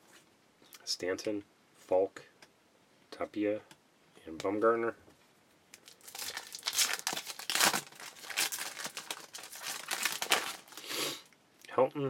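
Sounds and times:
foil wrapper crinkling: 5.7s - 10.9s
foil wrapper tearing: 5.8s - 10.9s.

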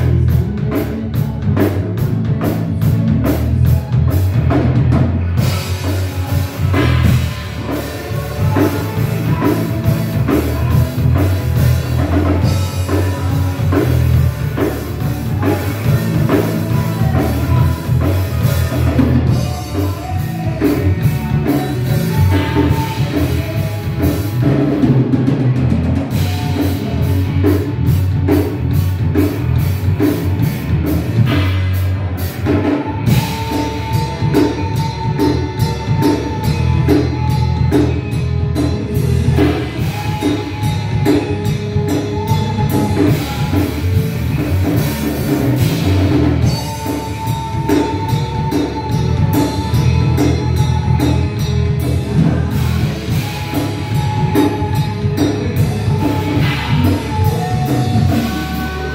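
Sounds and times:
drum kit beat: 0.0s - 58.9s
keyboards: 0.0s - 58.9s
rock band on tv speaker: 0.0s - 58.9s.

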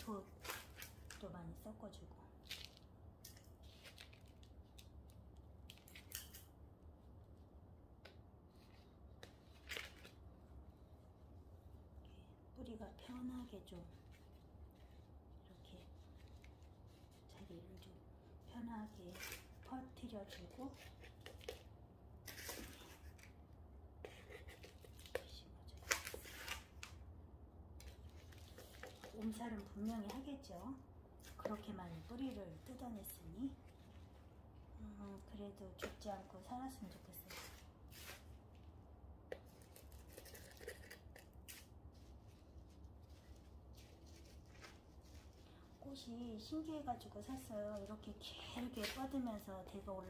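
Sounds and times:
metal scoop scraping potting mix: 39.6s - 41.6s.

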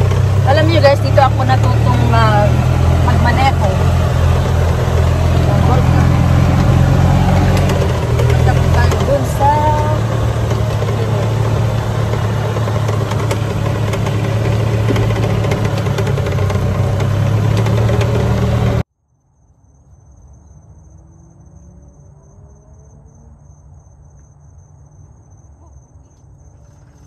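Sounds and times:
golf cart rumble: 0.0s - 18.9s
faint rising chirps: 19.2s - 27.0s.

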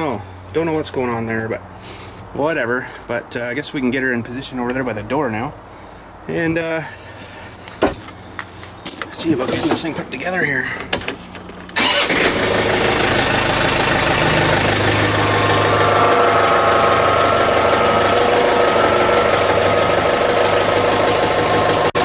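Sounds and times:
diesel tractor engine running: 6.4s - 22.0s.

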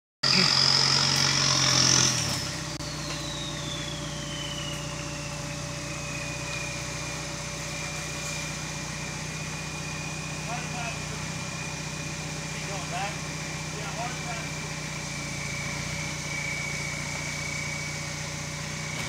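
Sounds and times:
diesel engine revving: 0.2s - 19.0s
high turbo whine: 0.2s - 19.0s.

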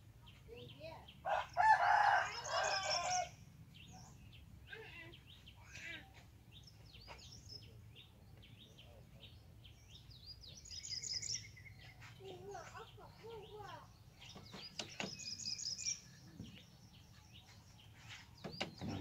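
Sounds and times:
rooster crowing: 1.3s - 3.3s
faint small-bird chirps: 2.4s - 19.0s.

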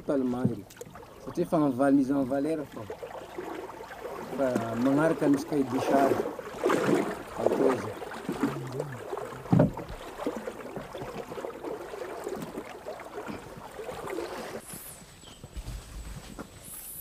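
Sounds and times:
water sloshing: 0.0s - 16.9s
paddle strokes: 0.0s - 17.0s
heavy knock on canoe: 0.2s - 0.8s, 3.5s - 14.0s.

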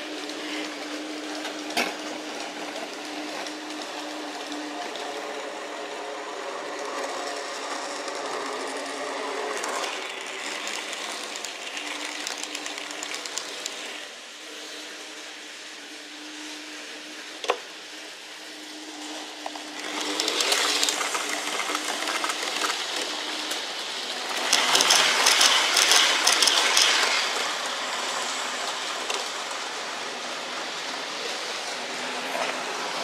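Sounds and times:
small electric motors whirring: 0.0s - 15.6s, 16.2s - 33.0s
model train wheels rattling: 7.7s - 14.0s, 19.7s - 23.6s, 24.2s - 27.4s.

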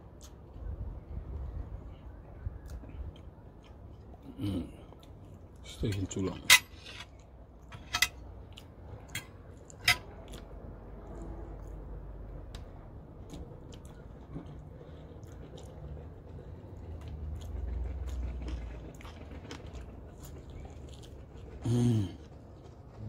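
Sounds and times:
chewing: 2.6s - 6.0s, 7.1s - 11.9s, 13.2s - 23.0s.

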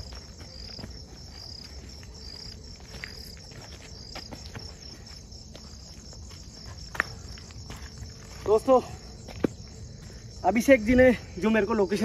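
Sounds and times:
crickets chirping: 0.0s - 12.0s
footsteps on dirt path: 0.0s - 12.0s.

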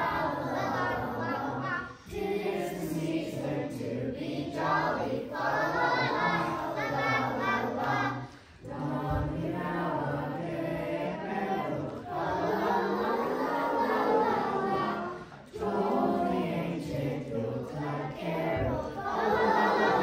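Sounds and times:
children's choir singing: 0.0s - 20.0s.

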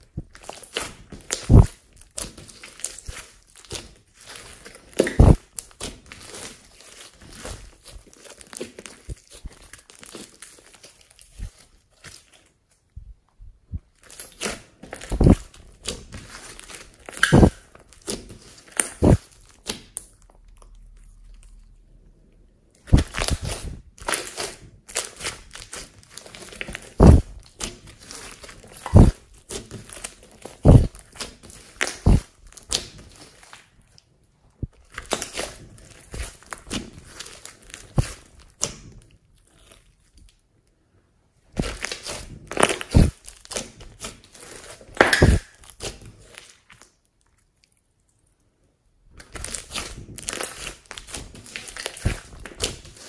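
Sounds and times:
slime squelching: 0.0s - 53.0s
crackling air-pocket pops: 45.0s - 45.5s.

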